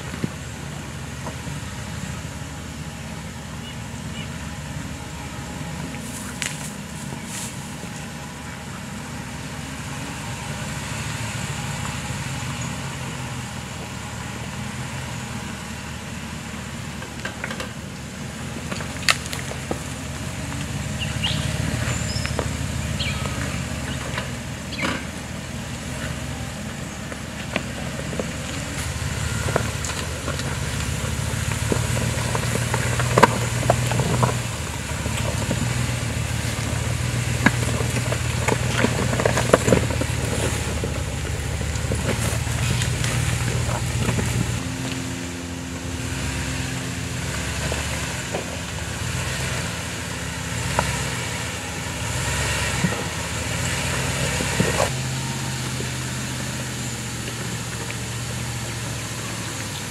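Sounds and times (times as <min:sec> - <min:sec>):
car engine running at low speed: 0:00.0 - 0:59.9
stones clicking under tyres: 0:05.9 - 0:07.6, 0:16.9 - 0:55.0, 0:55.6 - 0:59.9.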